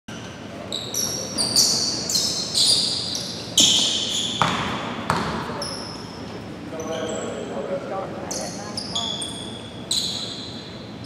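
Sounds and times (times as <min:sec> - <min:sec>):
shoes squeaking on hardwood floor: 0:00.1 - 0:07.4
basketball bouncing: 0:03.6 - 0:05.6.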